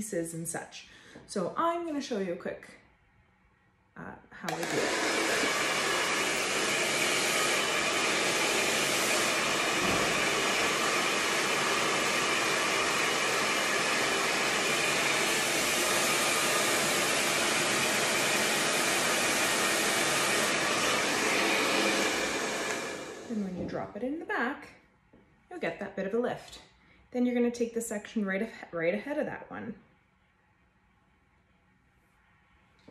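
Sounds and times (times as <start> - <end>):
hair dryer blowing: 4.4 - 24.0.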